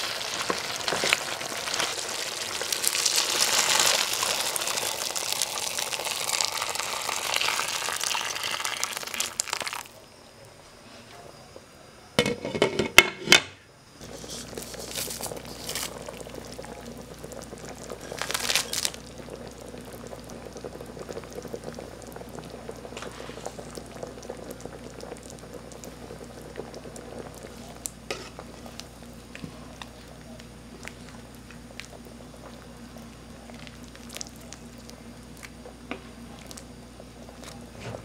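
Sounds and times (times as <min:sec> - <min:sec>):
soup bubbling in a pot: 0:00.0 - 0:10.0, 0:14.0 - 0:38.0
scrape: 0:14.0 - 0:15.9, 0:23.0 - 0:23.5.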